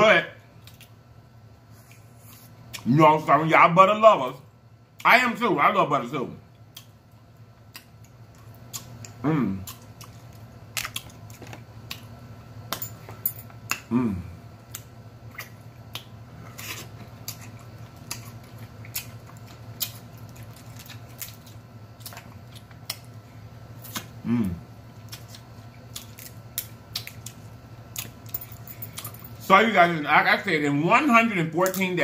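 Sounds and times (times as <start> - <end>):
chewing and lip smacking: 6.7 - 7.0, 7.6 - 12.2, 14.6 - 23.2, 24.9 - 29.1
person humming: 13.9 - 14.4, 24.2 - 24.6.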